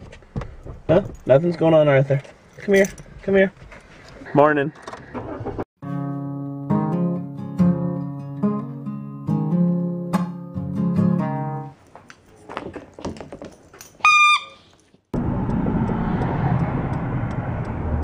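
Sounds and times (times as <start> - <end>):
acoustic guitar strumming: 5.8 - 11.7
squeaky toy squeak: 14.0 - 14.7
car road and engine noise: 14.8 - 18.0.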